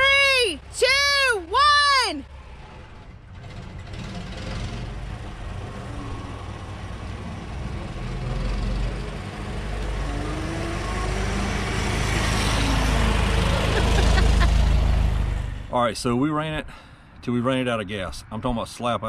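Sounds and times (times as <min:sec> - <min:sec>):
car engine passing by: 0:02.2 - 0:15.8.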